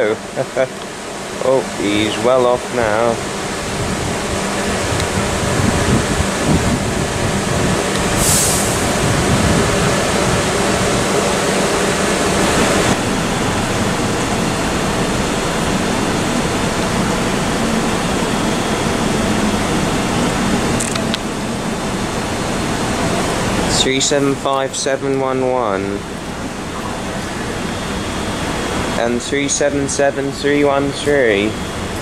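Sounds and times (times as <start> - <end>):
electric trains humming: 0.0 - 32.0
short hiss: 8.2 - 8.9.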